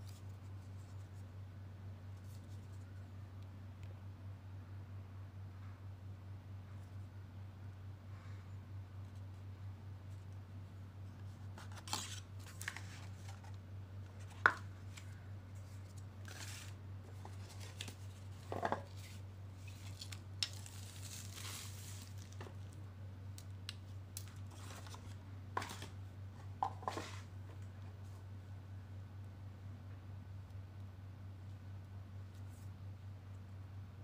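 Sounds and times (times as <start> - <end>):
steady low hum: 0.0 - 34.0
paper and cardboard rustling: 11.2 - 22.6, 24.4 - 27.3.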